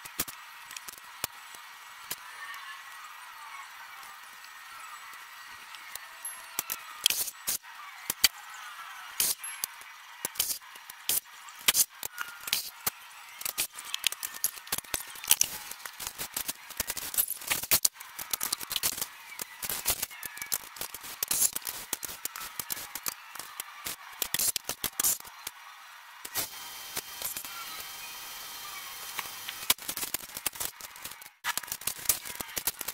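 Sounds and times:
vinyl film crackling and crinkling: 10.2 - 25.5, 29.1 - 32.9.

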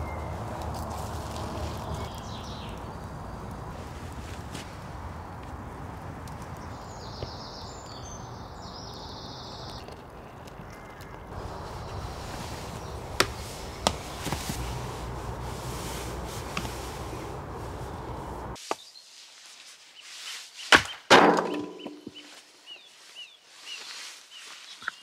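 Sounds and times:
birds chirping: 0.0 - 19.0, 20.0 - 25.0
steady rushing noise: 11.3 - 18.6
loud wooden knocks: 21.1 - 22.2.

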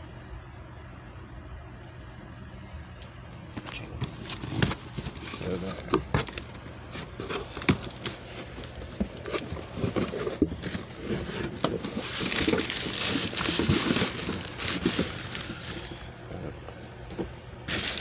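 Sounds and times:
cardboard box handled: 4.0 - 16.0, 17.1 - 18.0
plastic packing crinkling: 4.0 - 16.0, 17.7 - 18.0.

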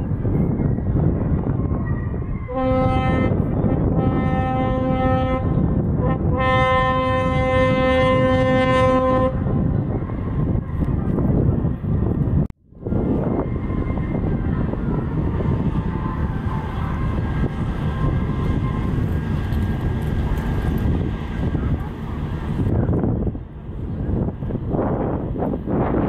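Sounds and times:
steady low rumble: 0.0 - 26.0
ship horn blasts: 2.4 - 10.8, 12.8 - 25.2.

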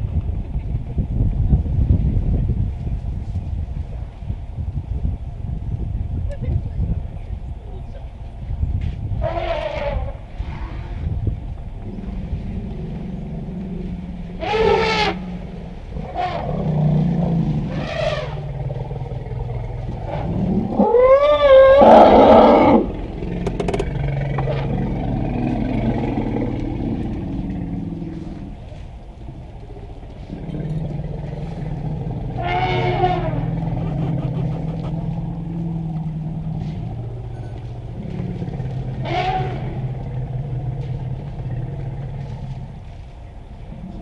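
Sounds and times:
elephants trumpeting: 9.2 - 11.0, 13.0 - 28.6, 29.8 - 42.9.

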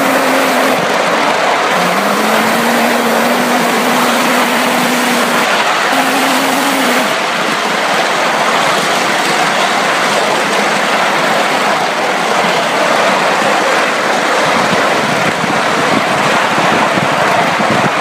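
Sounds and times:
wind on microphone: 0.0 - 7.6, 14.4 - 18.0
miniature steam locomotive running: 0.0 - 18.0
steady low tone: 1.7 - 7.2.

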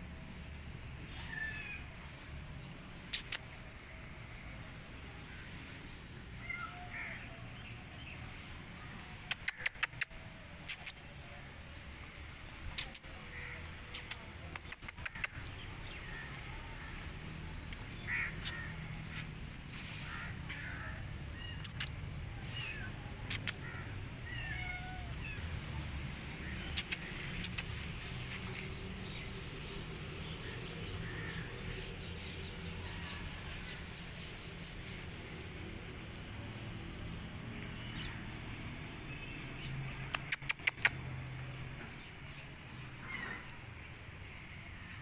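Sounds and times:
sharp clicks: 3.1 - 3.5, 9.2 - 11.1, 12.6 - 13.2, 13.9 - 15.5, 21.6 - 22.0, 23.3 - 23.6, 26.7 - 27.8, 39.9 - 41.0
kitten meowing: 24.3 - 25.4.

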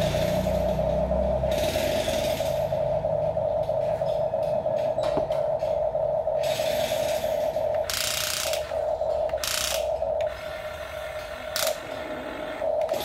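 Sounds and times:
toy electric motors whirring: 0.0 - 3.0, 6.4 - 13.0.

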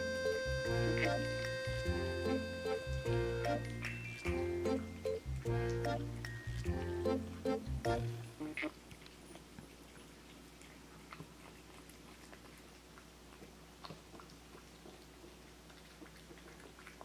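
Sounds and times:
steady low hum: 0.0 - 8.6
cat eating wet food: 4.5 - 17.0.

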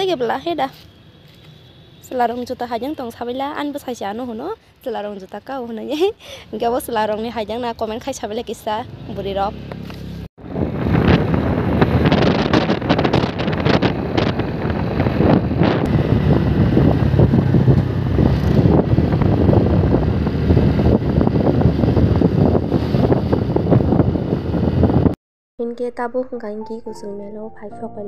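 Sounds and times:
road and engine noise: 0.0 - 25.2
wind buffeting microphone: 10.4 - 25.2.

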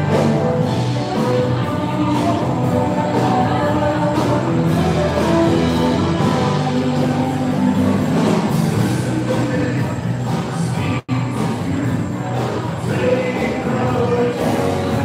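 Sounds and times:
music with held notes: 0.0 - 15.0.

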